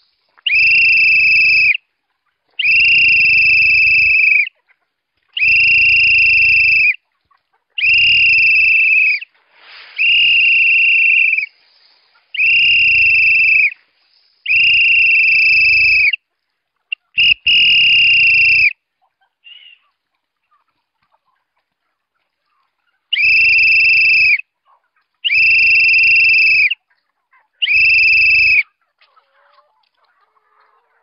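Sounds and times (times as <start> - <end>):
whistle blasts: 0.5 - 1.8, 2.6 - 4.5, 5.4 - 7.0, 7.8 - 9.3, 9.9 - 11.6, 12.4 - 13.8, 14.4 - 16.2, 17.2 - 18.8, 23.1 - 24.4, 25.2 - 26.8, 27.6 - 28.6.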